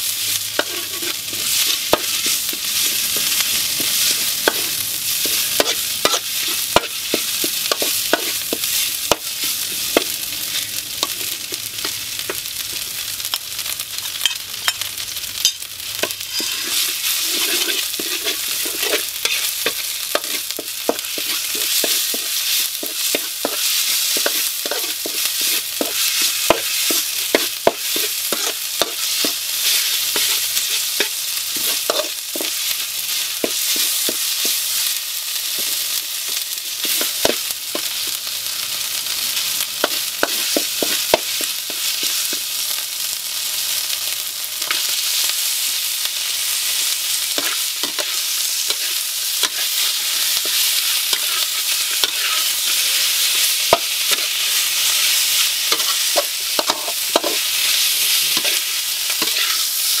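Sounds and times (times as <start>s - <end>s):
paste sizzling in a wok: 0.0s - 60.0s
metal ladle scraping a pan: 0.6s - 9.2s, 16.0s - 32.5s, 47.4s - 53.0s, 55.7s - 60.0s.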